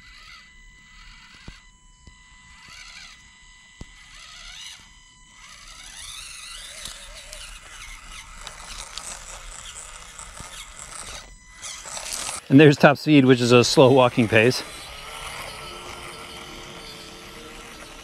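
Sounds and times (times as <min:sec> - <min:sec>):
small electric motor whining: 0:00.0 - 0:18.0.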